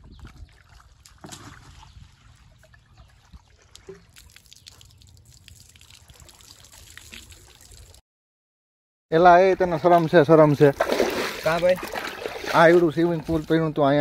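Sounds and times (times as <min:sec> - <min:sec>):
water trickling and dripping: 0:02.1 - 0:08.0.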